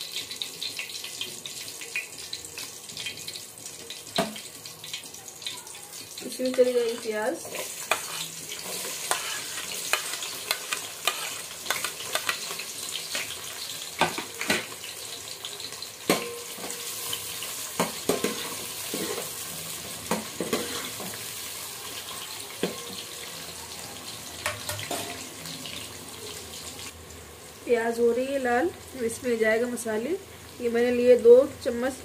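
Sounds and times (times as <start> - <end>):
onions sizzling in hot oil: 0.0 - 32.0
spoon scraping a metal pot: 7.4 - 13.4, 20.4 - 21.2.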